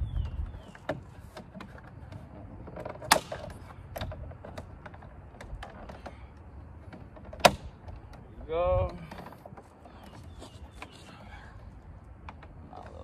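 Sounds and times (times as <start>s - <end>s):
loud plastic snaps: 3.0s - 4.1s.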